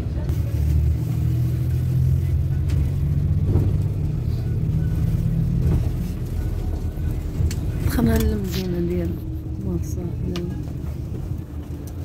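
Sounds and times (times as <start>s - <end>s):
vehicle engine and road rumble: 0.0s - 12.0s.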